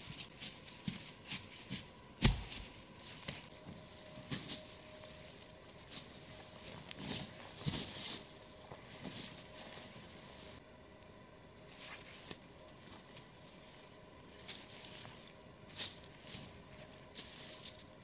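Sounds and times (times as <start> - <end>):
footsteps shuffling through dry leaves: 3.8 - 10.6, 14.5 - 18.0.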